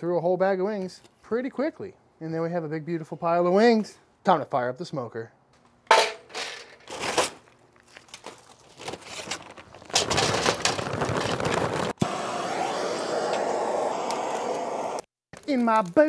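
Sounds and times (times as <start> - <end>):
charcoal clattering into metal: 5.9 - 7.4
gas torch flame rushing: 11.4 - 15.1.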